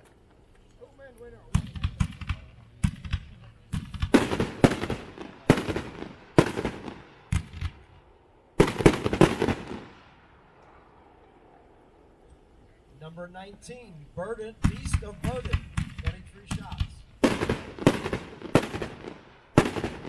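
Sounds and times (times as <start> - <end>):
firework cake bangs: 14.6 - 20.0.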